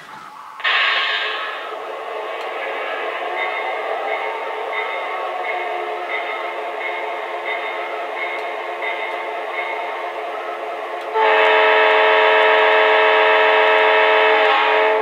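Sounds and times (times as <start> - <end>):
multi-note horn blast: 0.6 - 3.2, 11.1 - 15.0.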